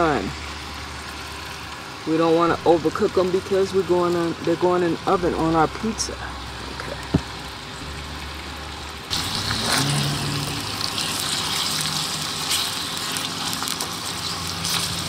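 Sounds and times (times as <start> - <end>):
low steady hum: 0.0 - 12.8
chicken sizzling in oil: 0.0 - 15.0
spatula stirring in skillet: 9.1 - 15.0.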